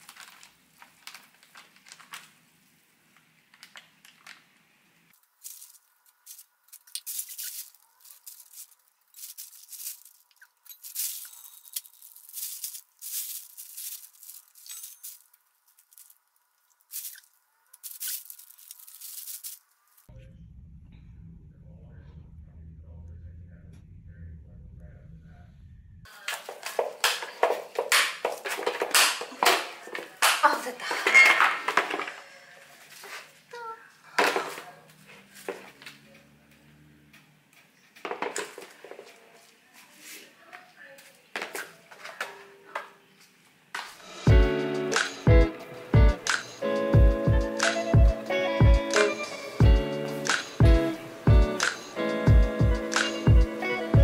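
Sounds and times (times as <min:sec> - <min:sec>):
plastic bag crinkling: 0:00.0 - 0:04.6, 0:05.2 - 0:20.1, 0:26.1 - 0:33.5.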